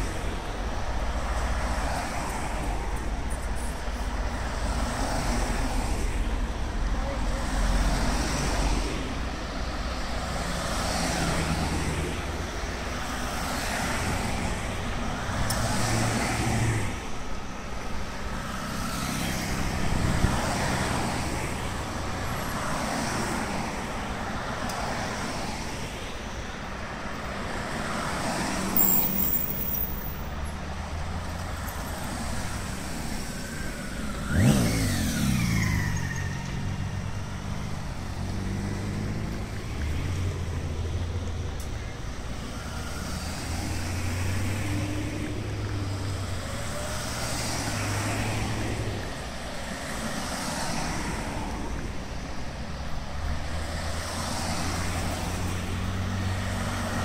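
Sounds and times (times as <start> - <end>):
cars driving past: 18.2 - 57.0.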